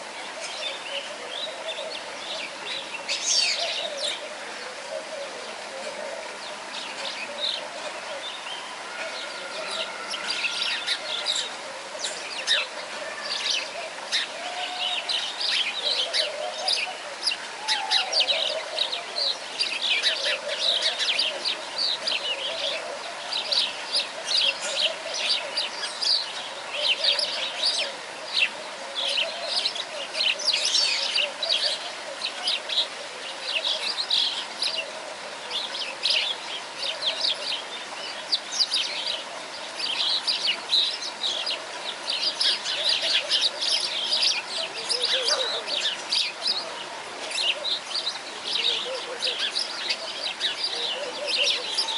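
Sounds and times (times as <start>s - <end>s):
small birds chirping: 35.5s - 51.9s.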